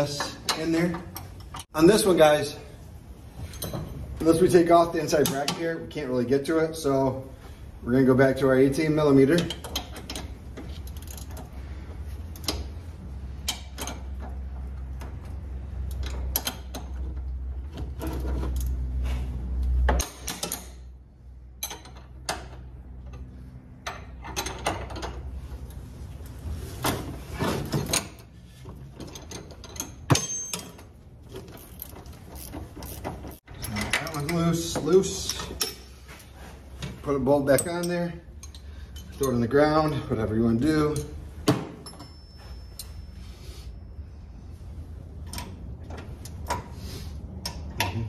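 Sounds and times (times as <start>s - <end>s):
ratchet wrench clicking: 31.6s - 34.3s.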